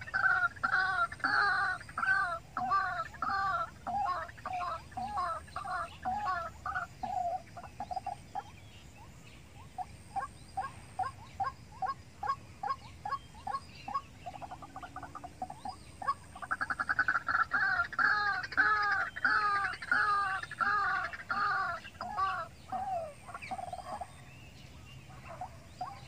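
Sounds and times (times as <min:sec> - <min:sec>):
bird trill: 0:00.0 - 0:26.0.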